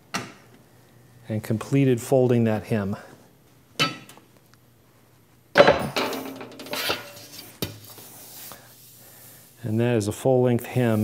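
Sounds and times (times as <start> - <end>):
metal sheet clanking: 5.6 - 7.5
sheet metal scraping and rattling: 5.8 - 7.6.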